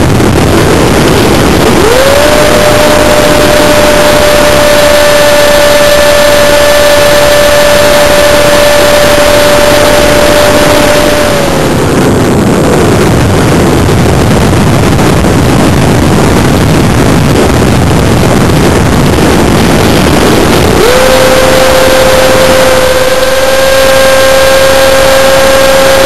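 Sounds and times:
electric motor whine: 0:00.0 - 0:13.5, 0:18.6 - 0:26.0
wind rushing over microphone: 0:00.0 - 0:26.0.

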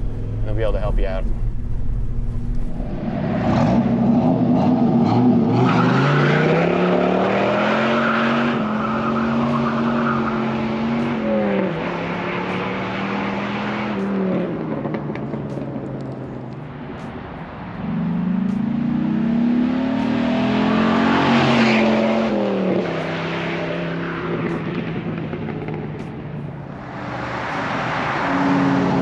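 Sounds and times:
tyres spinning and squealing: 0:07.5 - 0:10.7.

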